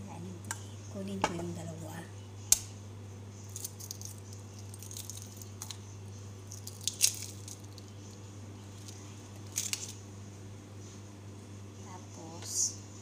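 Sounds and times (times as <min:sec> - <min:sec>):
steady low hum: 0:00.0 - 0:13.0
eggshell cracking: 0:03.4 - 0:05.8, 0:06.4 - 0:10.0.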